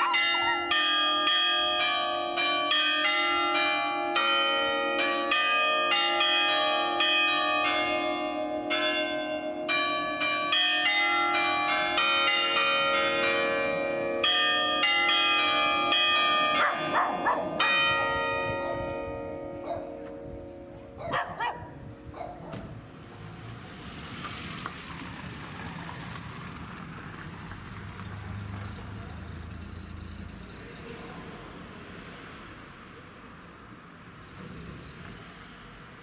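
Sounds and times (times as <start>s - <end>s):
church bells ringing: 0.0s - 22.1s.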